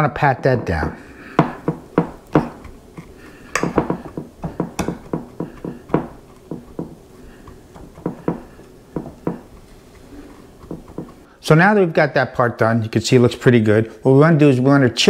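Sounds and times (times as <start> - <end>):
spatula tapping crust: 1.2 - 11.3.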